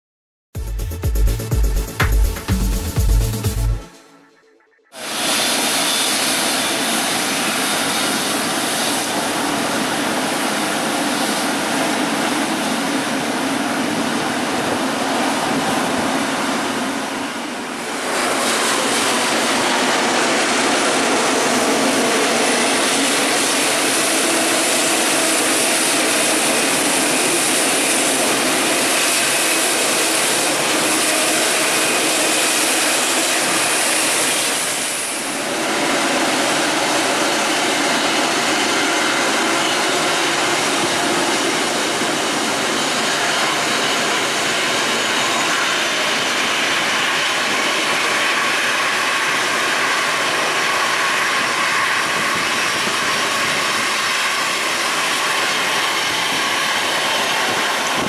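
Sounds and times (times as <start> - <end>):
jet engines running: 0.6 - 58.0.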